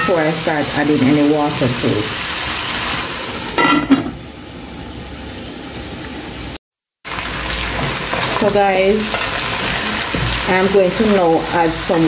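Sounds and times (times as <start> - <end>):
meat sizzling in hot oil: 0.0 - 12.0
metal lid clanking onto pot: 3.6 - 4.2.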